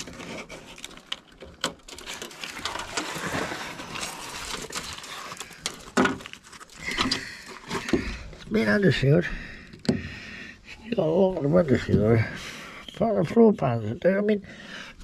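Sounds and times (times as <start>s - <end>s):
rustling and scraping: 0.0s - 8.9s.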